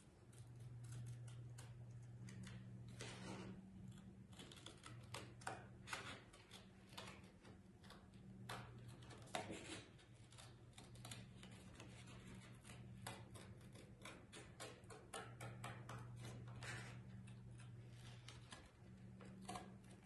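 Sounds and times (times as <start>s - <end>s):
faint low hum: 0.0s - 20.0s
scissors snipping cardboard: 3.8s - 20.0s.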